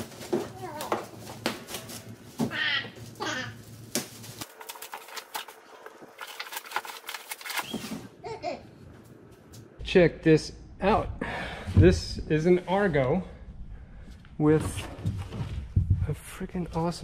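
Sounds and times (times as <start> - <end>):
plastic wrap crinkling: 3.0 - 8.1.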